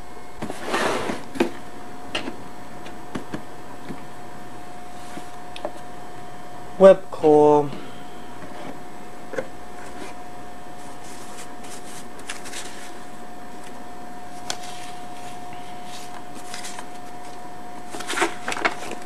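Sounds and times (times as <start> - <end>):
steady hum and hiss: 0.0 - 19.0
paper rustling: 10.8 - 13.7, 14.3 - 19.0.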